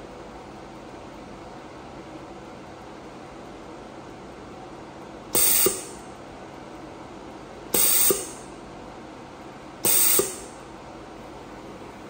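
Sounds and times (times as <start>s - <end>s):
cooling fan hum: 0.0s - 12.0s
laser welder hiss: 5.4s - 6.0s, 7.8s - 8.5s, 9.8s - 10.6s.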